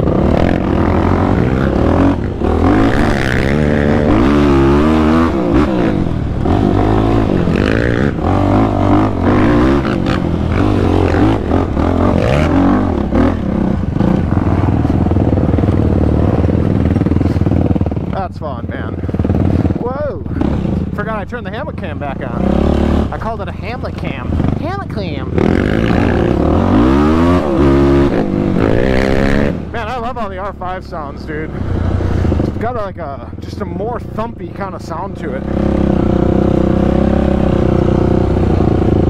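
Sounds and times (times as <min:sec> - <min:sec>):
atv engine revving: 0:00.0 - 0:39.0.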